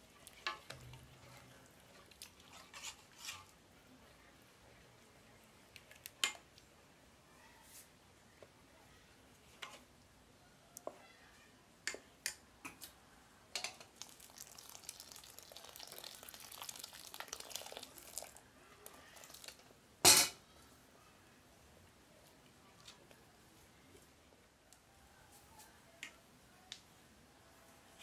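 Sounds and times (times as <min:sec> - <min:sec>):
water pouring into pot: 0:13.8 - 0:19.7.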